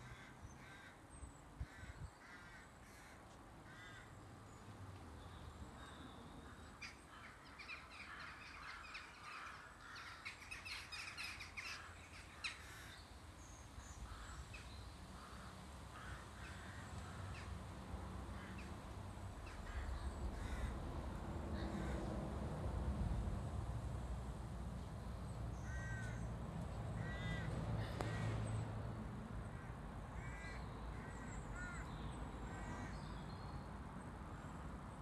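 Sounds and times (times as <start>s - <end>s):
flock of birds calling: 5.8s - 13.1s, 29.5s - 33.1s.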